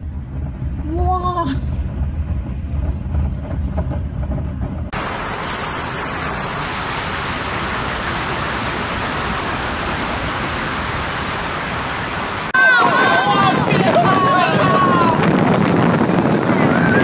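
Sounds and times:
wind rumble: 0:00.0 - 0:17.0
hiss of wind-driven water: 0:04.9 - 0:17.0
waves crashing over seawall: 0:04.9 - 0:17.0.

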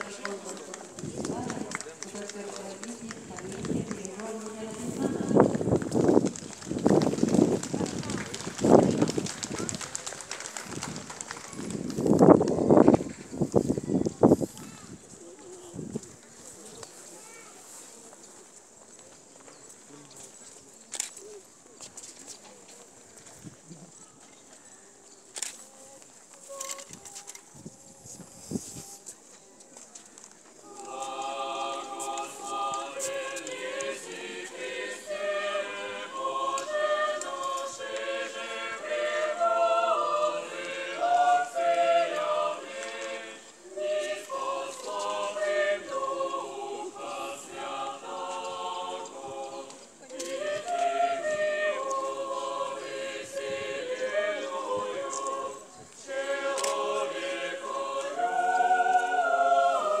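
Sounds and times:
choir singing a cappella: 0:00.0 - 0:00.8, 0:30.6 - 1:00.0.

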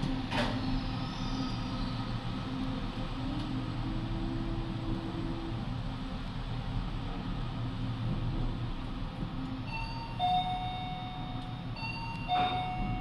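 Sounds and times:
train rumbling inside carriage: 0:00.0 - 0:13.0.

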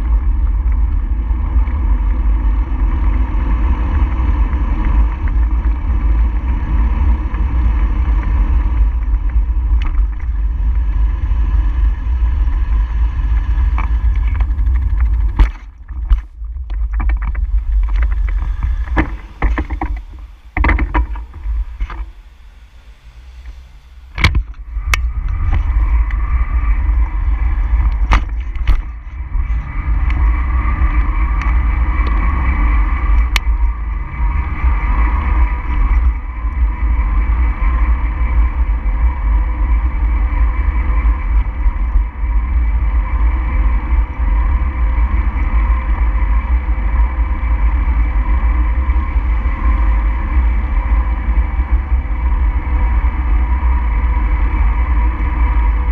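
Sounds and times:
road noise: 0:00.0 - 0:55.9
wind rumbling on microphone: 0:00.0 - 0:55.9
sharp clicks or knocks: 0:13.8 - 0:22.2, 0:23.2 - 0:25.4.

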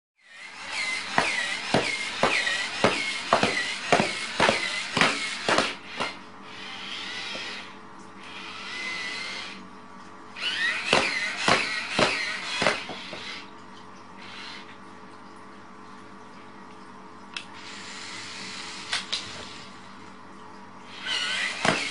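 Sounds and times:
electric motor whining: 0:00.2 - 0:09.6, 0:10.4 - 0:13.5, 0:20.9 - 0:21.9.

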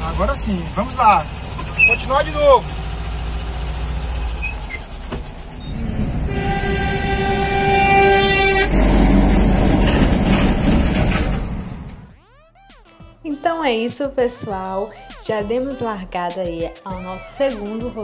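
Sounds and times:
truck passing with rushing rumble: 0:00.0 - 0:12.1
road and engine noise: 0:00.0 - 0:12.2
truck horn blast: 0:05.7 - 0:10.4.

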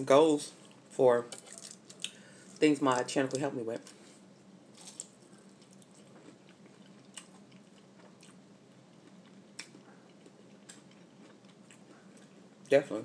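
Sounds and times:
faint steady hum: 0:00.0 - 0:13.0
quiet chewing: 0:04.8 - 0:12.7.

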